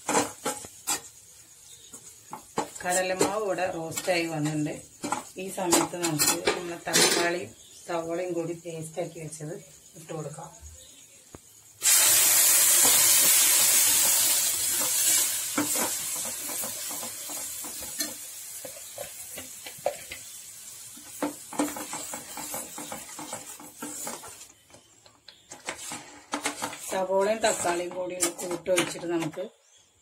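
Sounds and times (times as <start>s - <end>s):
puree sizzling in hot butter: 0.0s - 7.0s, 7.6s - 28.6s.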